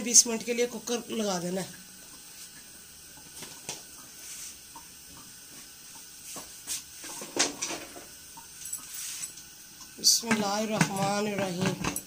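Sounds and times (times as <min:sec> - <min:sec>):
faint steady hiss: 0:00.0 - 0:12.0
kitchen handling clicks and knocks: 0:07.1 - 0:08.1, 0:10.2 - 0:12.0.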